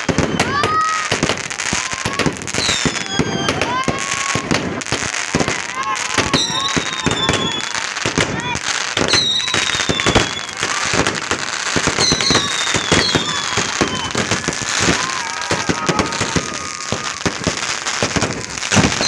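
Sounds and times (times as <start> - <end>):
fireworks bangs and crackles: 0.0 - 19.0
high falling whistle: 9.1 - 10.6, 12.0 - 17.3.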